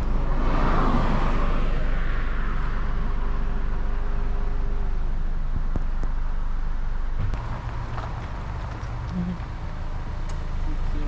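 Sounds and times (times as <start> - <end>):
passing car swishing by: 0.0 - 3.2
car rolling slowly: 0.0 - 11.0.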